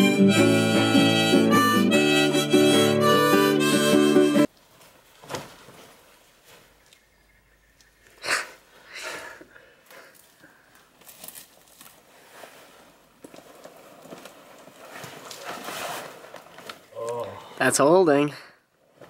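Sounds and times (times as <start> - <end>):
hammock fabric rustling and swishing: 4.5 - 7.1, 10.2 - 17.0.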